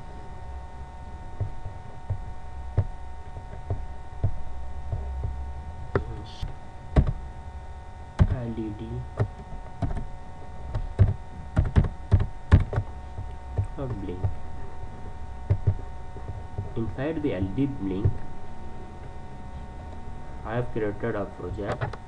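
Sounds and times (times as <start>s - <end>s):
steady electrical hum: 0.0s - 22.0s
keyboard keystrokes: 10.7s - 12.9s.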